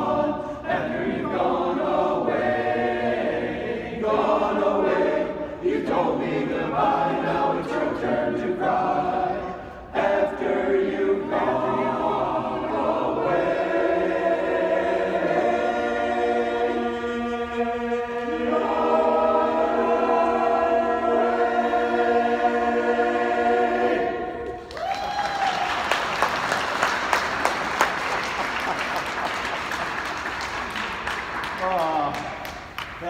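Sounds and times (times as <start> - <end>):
men's chorus singing a cappella: 0.0 - 24.6
audience applause: 24.6 - 33.0.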